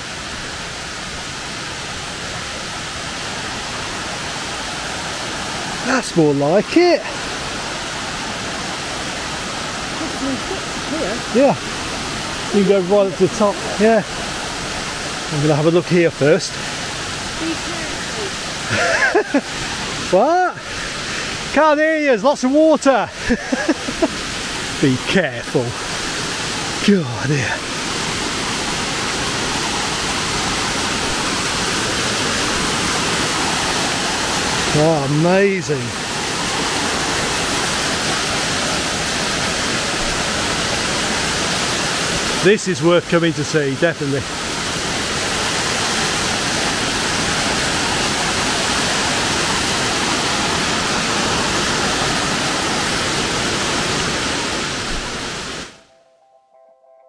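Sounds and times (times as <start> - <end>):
waterfall rushing: 0.0 - 55.9
faint guitar music: 55.8 - 57.0.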